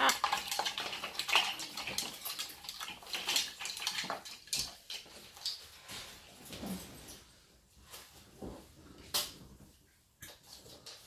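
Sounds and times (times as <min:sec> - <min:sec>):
wooden and plastic toy clattering: 0:00.0 - 0:05.8.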